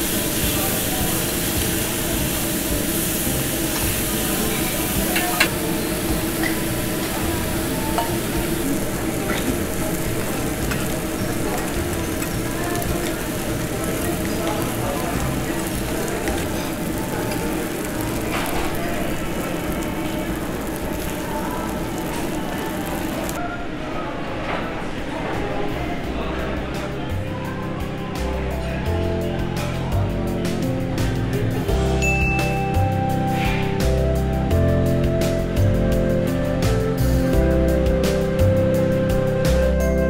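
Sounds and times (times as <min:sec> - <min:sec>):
meat sizzling on grill plate: 0:00.0 - 0:23.4.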